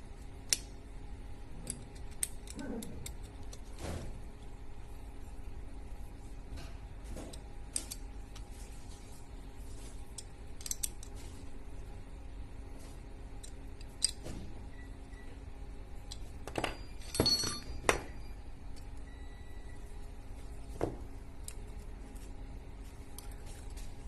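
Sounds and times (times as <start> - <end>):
steady low hum: 0.0 - 24.0
metal parts clicking and clinking: 7.3 - 8.5, 10.1 - 11.2, 16.1 - 18.2.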